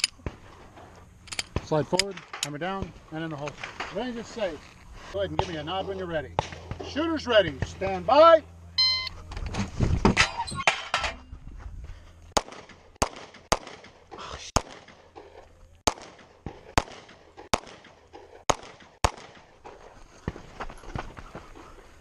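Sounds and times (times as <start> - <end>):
pistol shots: 12.4 - 15.0, 15.8 - 19.5.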